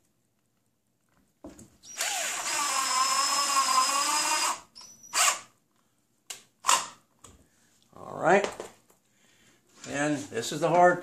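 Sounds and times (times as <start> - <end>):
cordless drill driving screw: 1.9 - 5.5, 6.6 - 7.0.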